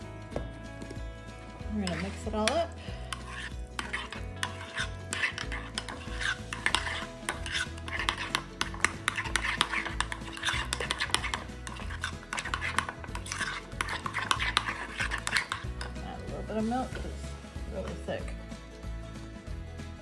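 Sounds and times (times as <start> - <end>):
utensil stirring in a bowl: 1.6 - 18.0
clicks and scrapes against bowl: 1.8 - 16.3.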